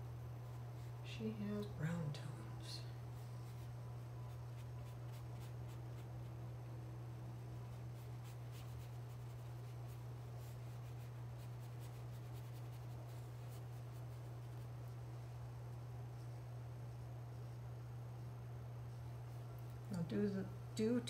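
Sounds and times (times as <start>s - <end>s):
steady low hum: 0.0s - 21.0s
paintbrush strokes on canvas: 3.0s - 6.4s, 7.6s - 15.2s
light scratches: 7.7s - 15.0s.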